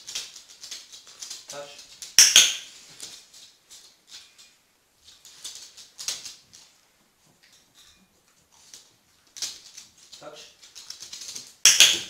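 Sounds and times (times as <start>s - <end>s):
dog claws ticking on floor: 0.0s - 12.0s
loud sharp noise: 2.2s - 2.7s.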